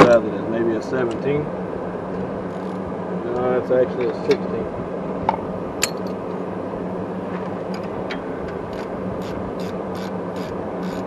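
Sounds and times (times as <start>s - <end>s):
steady low hum: 0.0s - 11.0s
ratchet wrench clicking: 8.7s - 11.0s.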